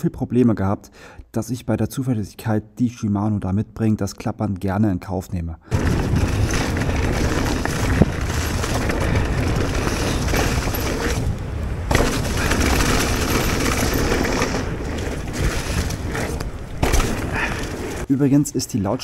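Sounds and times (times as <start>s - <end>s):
bike rumbling and clattering: 5.7s - 18.1s
wind buffeting microphone: 5.7s - 18.1s.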